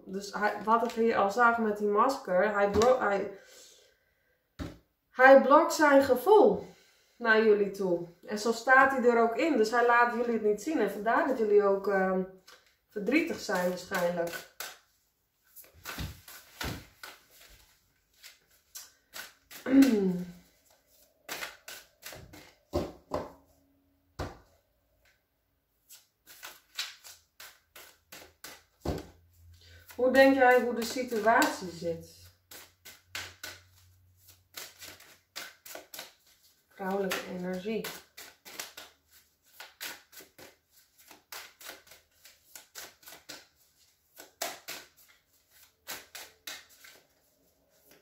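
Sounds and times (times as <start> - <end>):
cards being shuffled: 12.4 - 23.4, 25.8 - 48.0.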